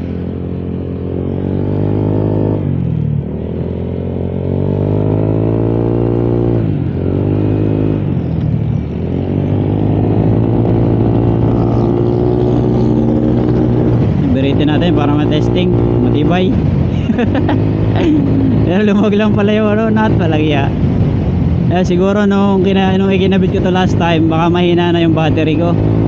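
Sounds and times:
scooter engine revving: 0.0s - 20.6s.

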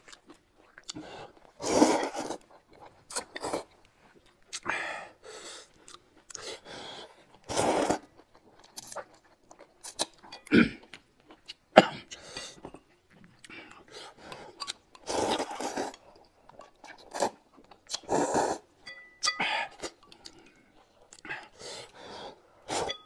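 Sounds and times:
chewing with clicks and smacks: 0.0s - 1.6s, 2.2s - 4.8s, 5.6s - 18.2s, 19.2s - 22.0s
noodles slurping: 7.4s - 9.0s, 13.4s - 18.7s.

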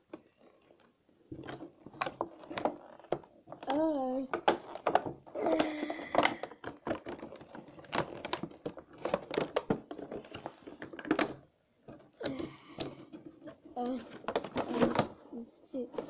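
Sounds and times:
plastic bag crinkling: 0.3s - 11.4s.

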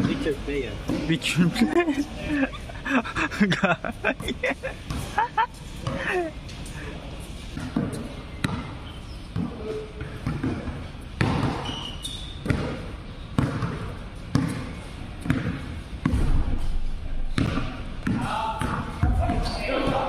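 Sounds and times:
brief high squeaks: 11.6s - 12.4s
basketball dribbling on hard court: 13.4s - 14.6s.

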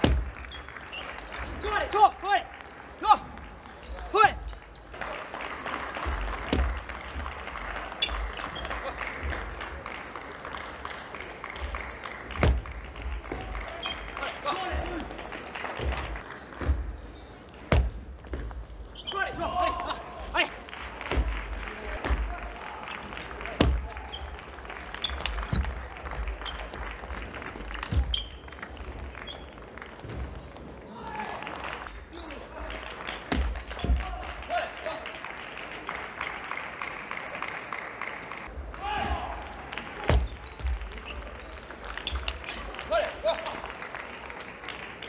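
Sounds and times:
sports hall noise: 0.0s - 45.0s
shoes squeaking on floor: 0.4s - 1.9s, 6.0s - 9.4s, 10.4s - 11.0s, 12.8s - 15.0s, 15.9s - 19.5s, 23.0s - 30.6s, 40.1s - 43.2s.

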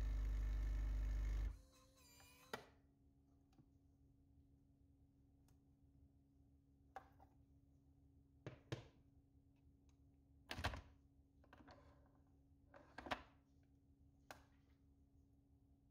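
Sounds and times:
faint steady hum: 0.0s - 1.6s.

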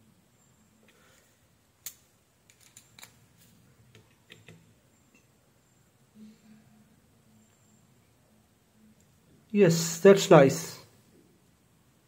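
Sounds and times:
small clicks and taps: 3.9s - 5.3s.

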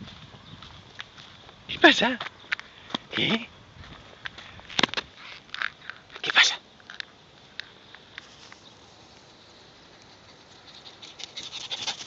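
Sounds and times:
scuffing crunch on dry dirt: 0.0s - 6.3s
dog paws running on dirt: 8.2s - 12.0s.

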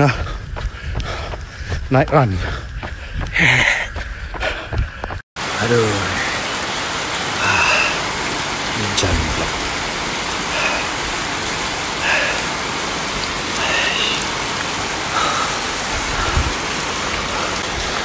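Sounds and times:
heavy rain on asphalt and cars: 0.0s - 3.8s, 4.4s - 18.0s
dull low bumps: 0.0s - 5.2s.

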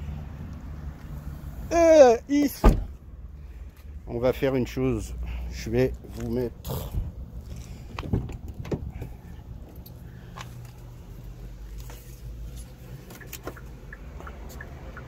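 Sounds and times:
car indicator ticking: 13.2s - 15.0s.

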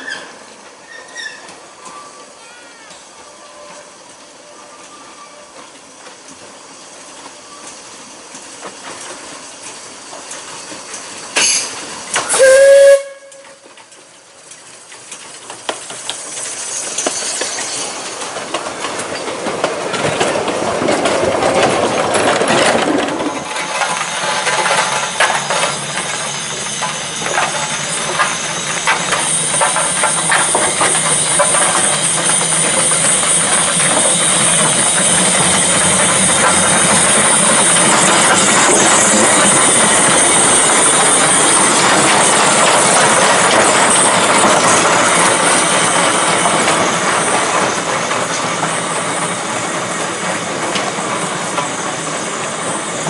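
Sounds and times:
steam hiss: 0.0s - 20.6s, 23.4s - 53.0s
steam locomotive chuffing: 3.2s - 53.0s
rail clatter: 5.5s - 53.0s
steam locomotive whistle: 12.2s - 13.6s.

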